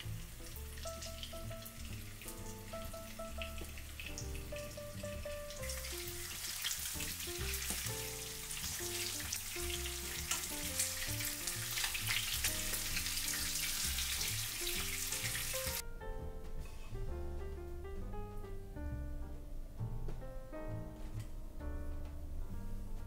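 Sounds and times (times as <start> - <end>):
fish sizzling in hot oil: 0.0 - 15.8.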